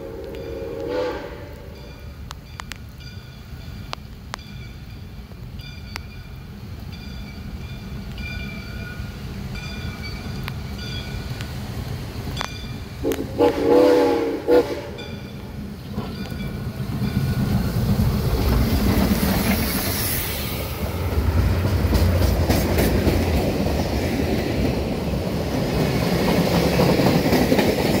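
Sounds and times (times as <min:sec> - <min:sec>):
freight train rumbling past: 0:00.0 - 0:28.0
wheels clicking over rail joints: 0:15.0 - 0:28.0.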